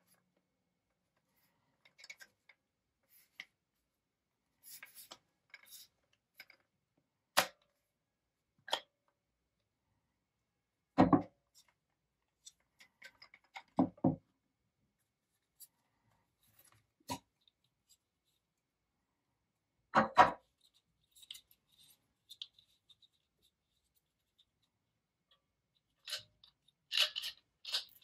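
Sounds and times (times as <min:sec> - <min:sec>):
plastic parts clicking and scraping: 0:01.8 - 0:03.5, 0:11.6 - 0:13.8, 0:20.4 - 0:28.0.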